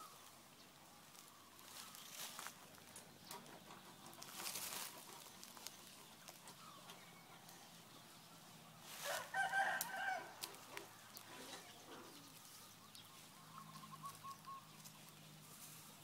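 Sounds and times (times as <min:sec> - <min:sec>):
rooster crowing: 0:08.9 - 0:10.8.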